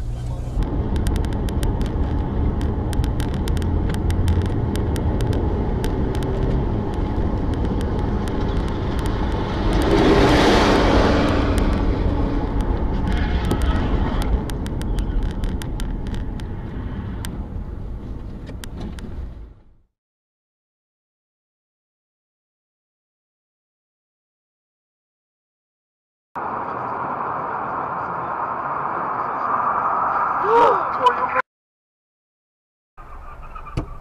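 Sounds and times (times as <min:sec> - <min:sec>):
rush of noise: 0:00.0 - 0:17.7, 0:26.4 - 0:31.4
car engine and road rumble: 0:00.0 - 0:19.9, 0:26.4 - 0:31.4, 0:33.0 - 0:34.0.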